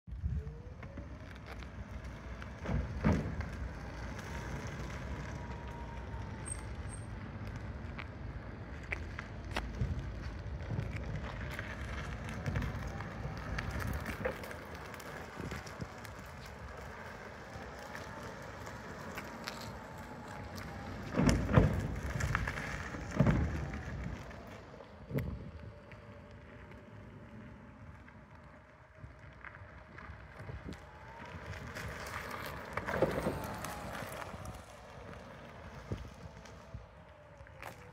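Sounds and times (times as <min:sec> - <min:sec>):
tyre and wind noise: 0:00.1 - 0:37.9.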